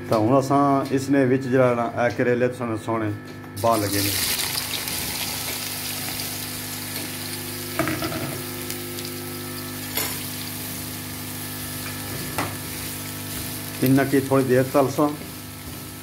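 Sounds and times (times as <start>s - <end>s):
vegetables sizzling in hot oil: 3.6s - 16.0s.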